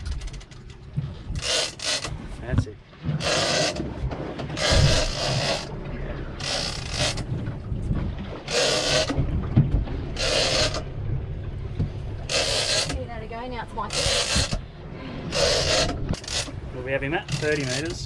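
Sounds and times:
fishing reel gears whirring: 1.4 - 2.1, 3.2 - 3.8, 4.6 - 5.8, 6.4 - 7.3, 8.5 - 9.2, 10.2 - 10.9, 12.2 - 13.0, 13.8 - 14.7, 15.3 - 16.6.

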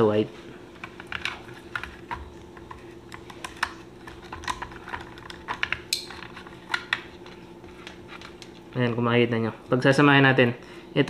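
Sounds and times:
faint steady hum: 0.0 - 11.0
wire being handled: 0.7 - 8.8.

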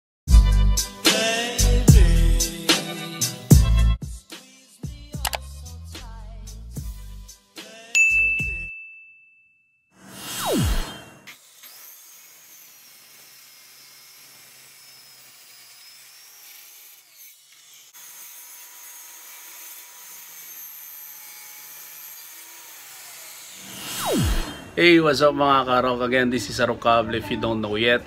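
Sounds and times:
circular saw cutting wood: 0.9 - 3.6, 10.0 - 25.3.

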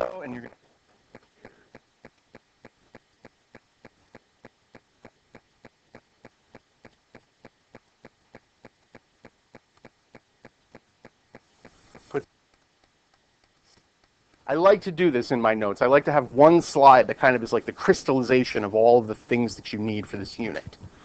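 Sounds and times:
faint mechanical ticking: 0.0 - 15.8.

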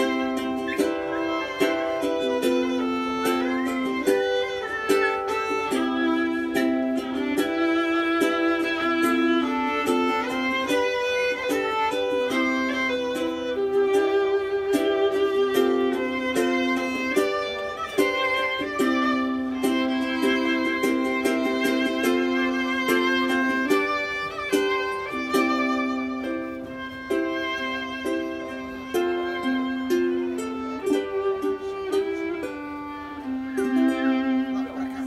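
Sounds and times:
violin melody with slides: 0.0 - 35.0.

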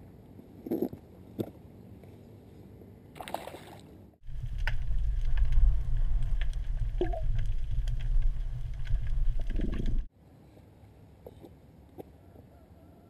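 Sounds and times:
underwater rumble against camera housing: 4.2 - 10.1.

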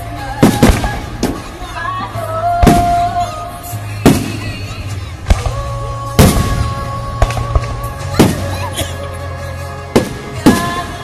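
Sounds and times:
fireworks booming and crackling: 0.0 - 8.7, 9.9 - 11.0
music: 0.0 - 11.0.

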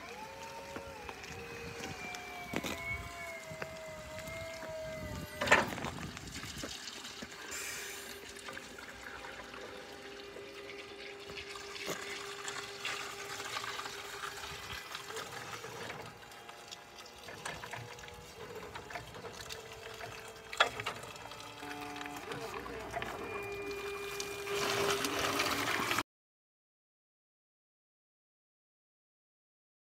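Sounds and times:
electric motor whine: 0.0 - 26.0
tyres hissing on wet asphalt: 6.7 - 8.3.

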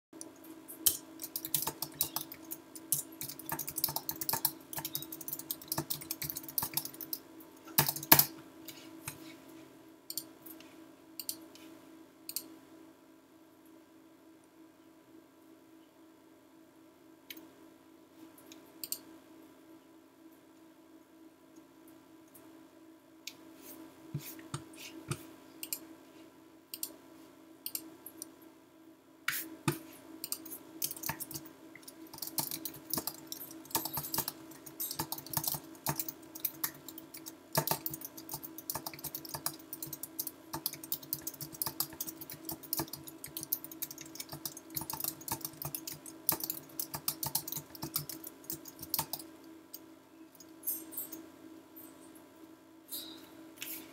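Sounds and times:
typing on computer keyboard: 0.9 - 8.3, 30.2 - 49.3.

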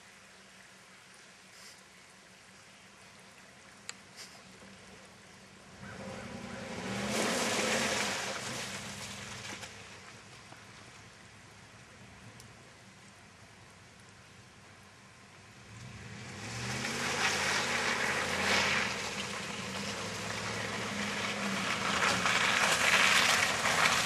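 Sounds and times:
tyres churning mud and water: 1.4 - 24.0
pickup engine revving: 5.7 - 9.5, 15.6 - 24.0.

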